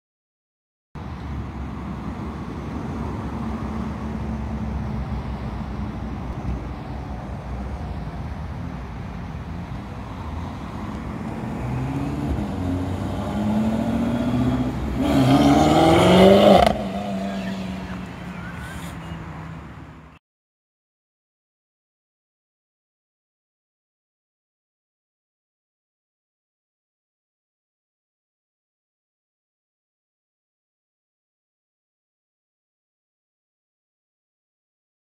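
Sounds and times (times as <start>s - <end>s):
car engine accelerating: 9.7s - 20.0s.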